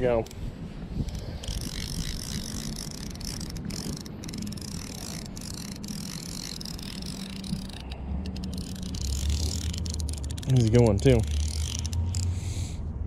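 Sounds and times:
fly reel drag clicking: 0:01.0 - 0:12.6.

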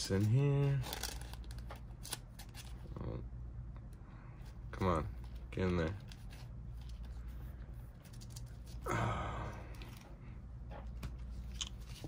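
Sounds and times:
low electrical hum: 0:00.0 - 0:12.0
person sighing: 0:08.8 - 0:10.0.

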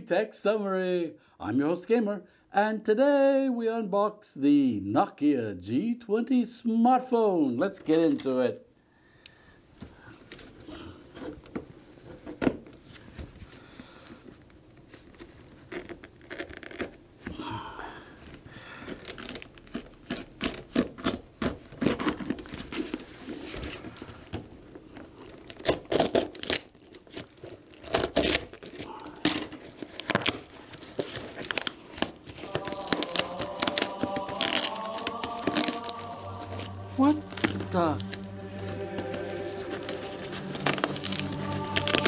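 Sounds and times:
cardboard box scraping and tearing: 0:39.5 - 0:42.0.

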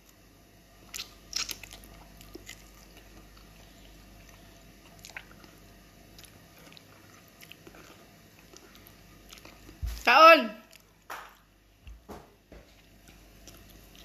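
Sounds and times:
biting and chewing: 0:00.8 - 0:09.8.

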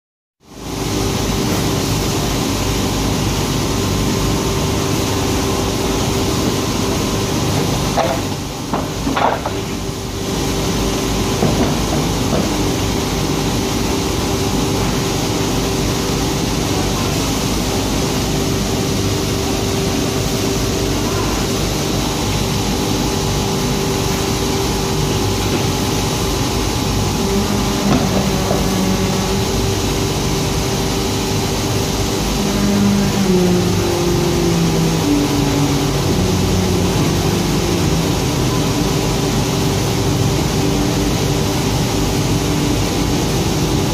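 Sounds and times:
grinding machine hissing and humming: 0:00.5 - 0:43.9.

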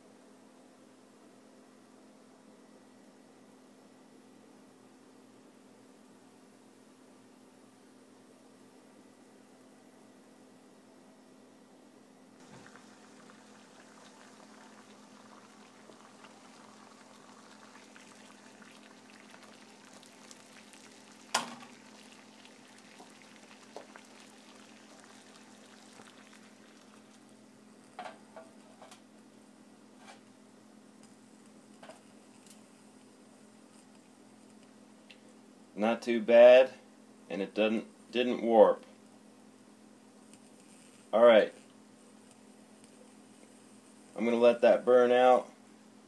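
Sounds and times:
water bubbling while boiling: 0:12.4 - 0:28.4.

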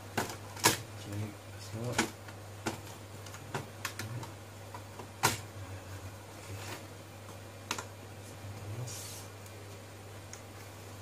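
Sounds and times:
clicks and taps of plastic parts: 0:00.1 - 0:00.9, 0:01.8 - 0:05.4, 0:07.3 - 0:07.9.

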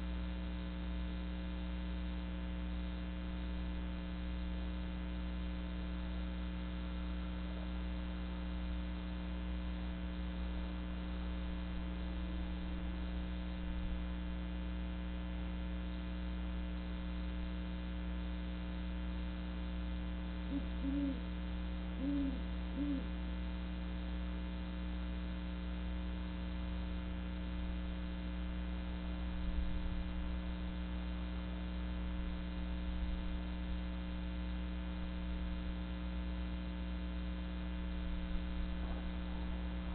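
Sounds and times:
steady electrical hum: 0:00.0 - 0:39.9
owl hooting: 0:20.4 - 0:23.2.

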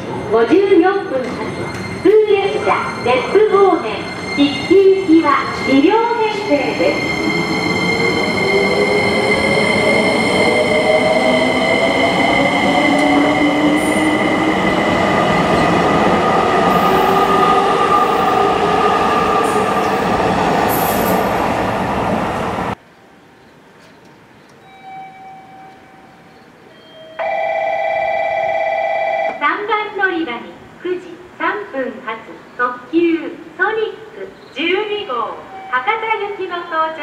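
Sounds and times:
train carriages rumbling past: 0:00.0 - 0:22.8.

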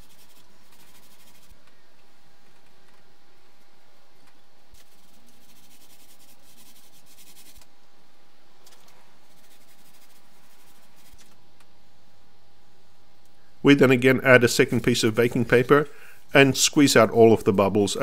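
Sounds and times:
gloved hands rubbing cloth: 0:00.0 - 0:01.6, 0:04.8 - 0:07.6, 0:09.2 - 0:11.3, 0:14.4 - 0:15.9.

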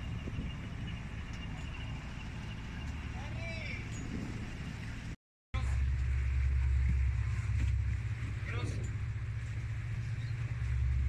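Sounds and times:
wind buffeting microphone: 0:00.0 - 0:05.2
boat engine rumbling: 0:00.0 - 0:11.0.

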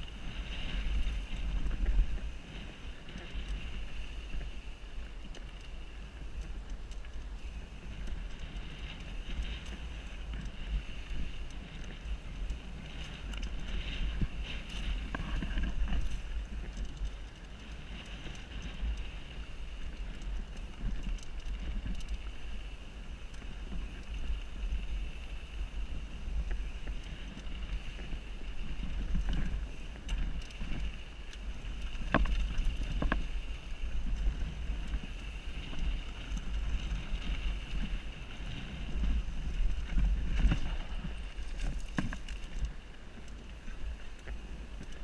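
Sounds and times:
wind rumbling on camera: 0:00.0 - 0:45.0.

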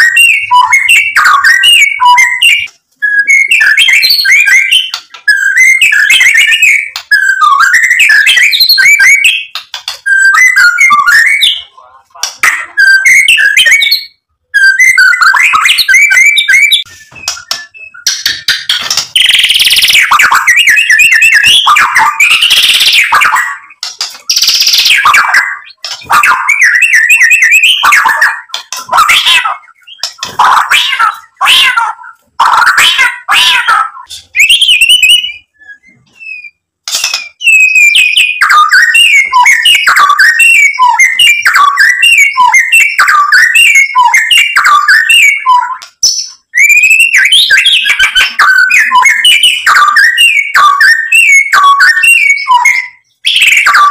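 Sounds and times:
songbird singing: 0:00.0 - 0:53.9.

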